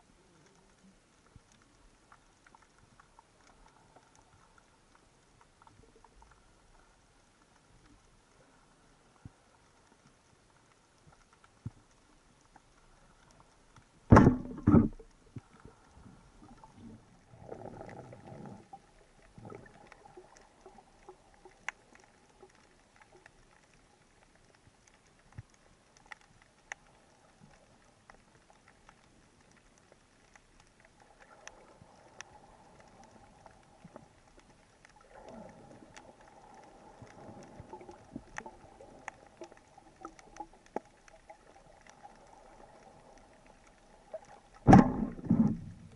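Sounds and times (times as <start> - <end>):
underwater clicks and crackles: 0.0 - 45.9
loud double thump: 14.1 - 14.9, 44.7 - 45.6.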